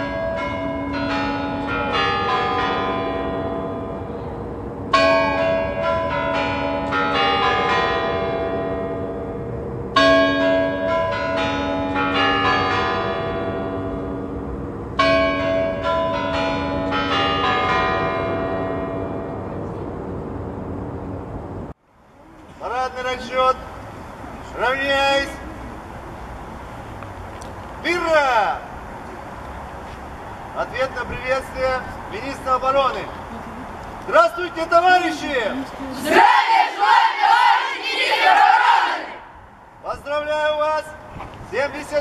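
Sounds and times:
clock bell chimes: 0.0 - 4.2, 4.9 - 14.3, 15.0 - 19.4.

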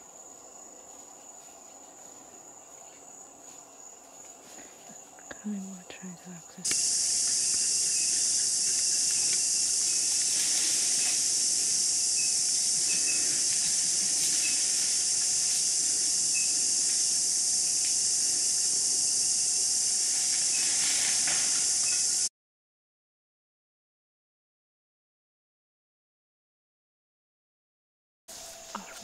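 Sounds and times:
insect chorus hissing: 0.0 - 22.3, 28.3 - 29.0.

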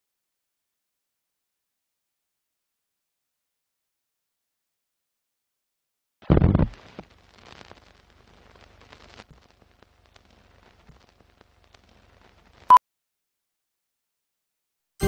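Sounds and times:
old film crackling: 6.2 - 12.7.

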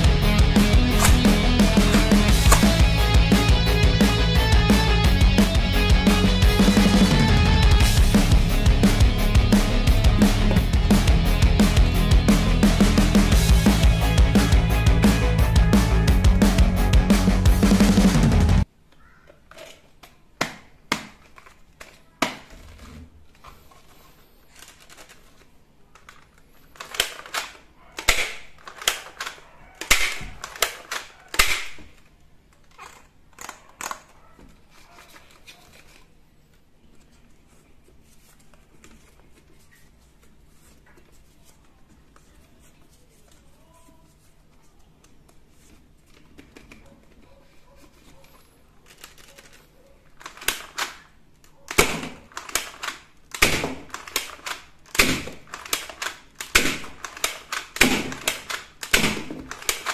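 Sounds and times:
plastic toy parts clicking: 18.9 - 23.9, 24.5 - 36.1, 48.8 - 59.9.

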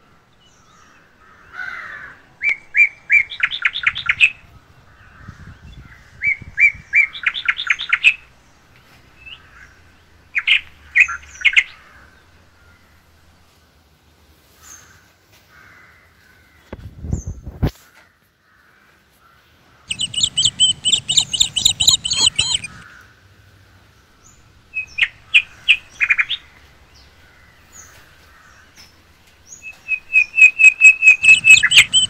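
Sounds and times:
bird chirping rapidly: 19.9 - 22.8, 29.6 - 32.0.

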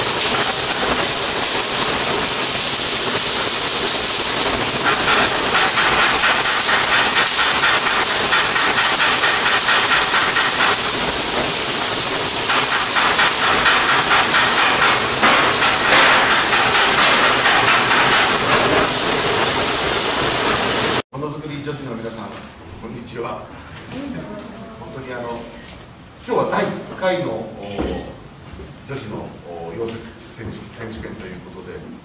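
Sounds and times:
arc welding hiss and crackle: 0.0 - 21.0.

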